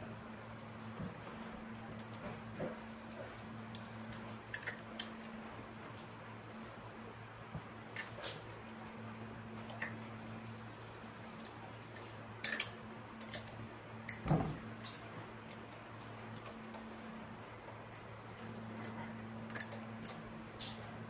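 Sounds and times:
steady low hum: 0.0s - 21.0s
metal parts and tools clinking: 12.4s - 16.8s, 18.8s - 20.3s.

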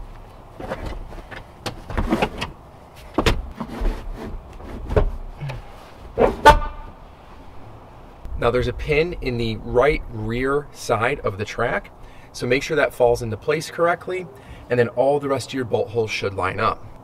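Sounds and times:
car seat clunking on rails: 0.6s - 4.0s.

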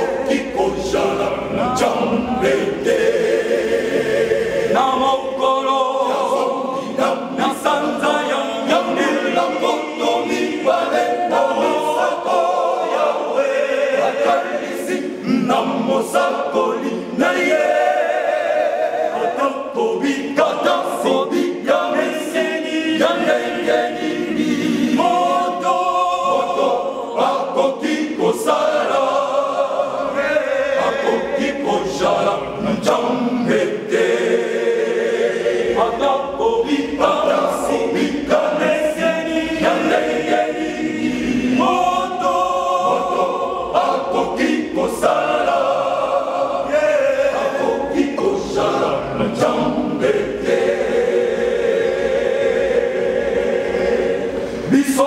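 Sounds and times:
male choir singing a cappella: 0.0s - 55.0s.

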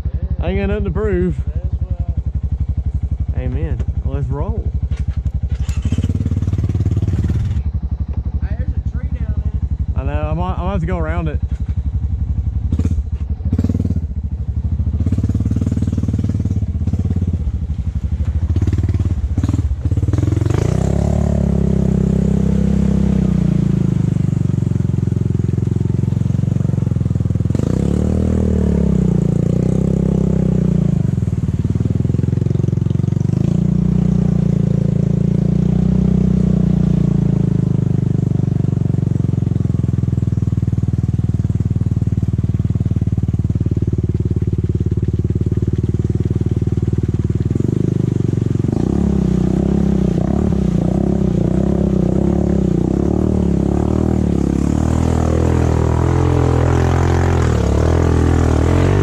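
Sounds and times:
atv engine under load: 0.0s - 59.0s
knocks and clatter of bouncing vehicle: 4.7s - 5.8s, 11.4s - 12.0s, 43.0s - 49.7s.

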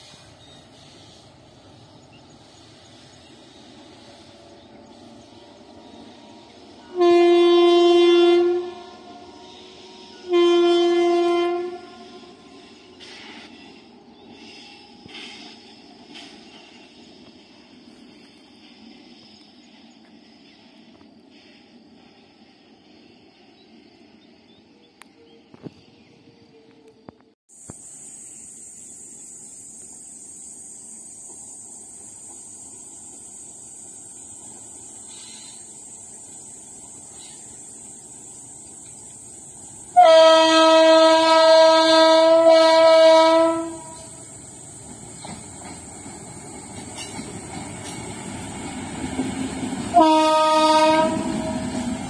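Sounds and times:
locomotive air horn blasts: 5.9s - 13.3s, 39.9s - 44.2s, 49.9s - 52.0s.

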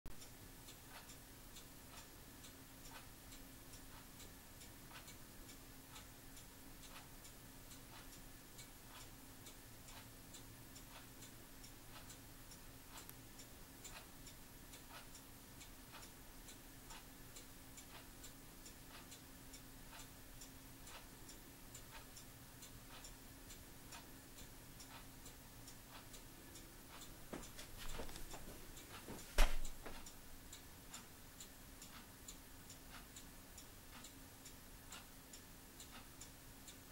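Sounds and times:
clock ticking: 0.1s - 36.9s
faint steady hum: 0.1s - 36.9s
sharp knock: 29.4s - 29.7s.

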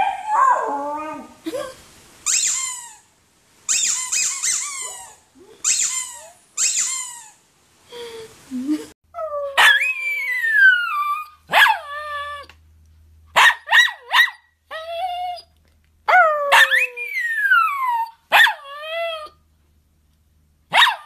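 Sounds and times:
dog yelping: 9.6s - 12.5s, 16.1s - 19.2s, 20.7s - 21.0s.

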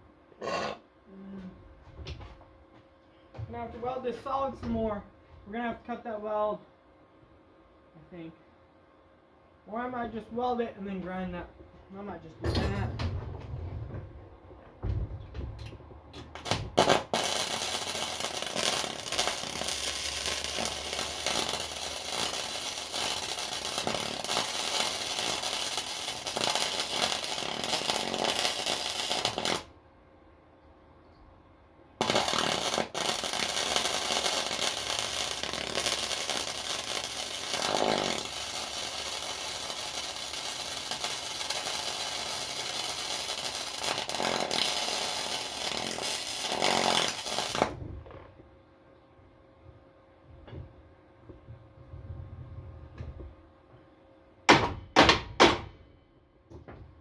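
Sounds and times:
welding arc: 16.3s - 29.7s, 32.0s - 47.8s.

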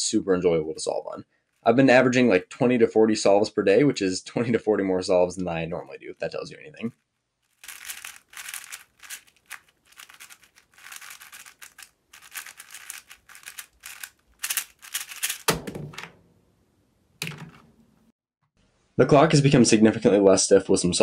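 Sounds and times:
puzzle cube clicking: 7.6s - 16.1s.

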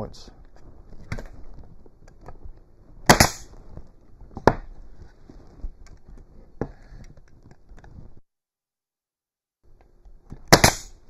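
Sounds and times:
pneumatic stapler shots: 3.1s - 3.5s, 10.4s - 11.0s.

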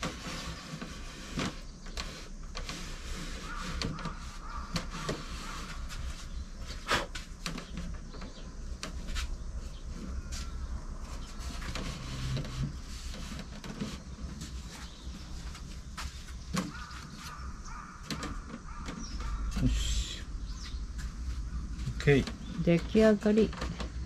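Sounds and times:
wooden boards knocking: 16.0s - 19.6s.

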